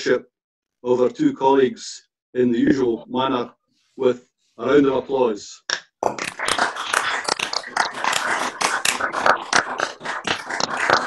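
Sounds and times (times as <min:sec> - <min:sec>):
crowd clapping over a call: 0:06.1 - 0:11.0.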